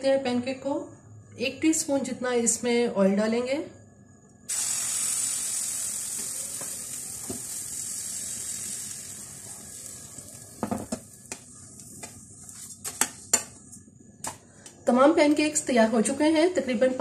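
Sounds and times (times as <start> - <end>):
batter sizzling in hot oil: 4.5 - 12.7
spatula scraping and tapping pan: 10.6 - 13.6.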